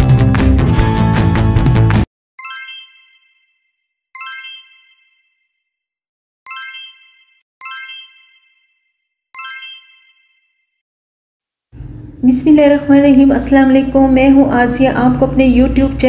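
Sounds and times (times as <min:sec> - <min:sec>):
bell-like chime: 0:02.4 - 0:05.8, 0:06.5 - 0:10.8.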